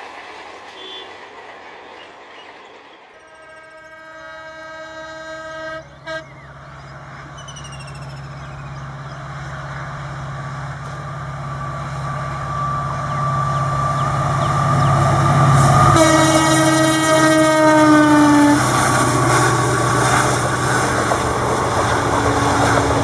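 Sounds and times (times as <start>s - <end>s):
train running noise: 0.0s - 23.0s
locomotive horn: 3.2s - 6.6s, 15.6s - 19.7s
diesel engine hum: 5.9s - 16.6s.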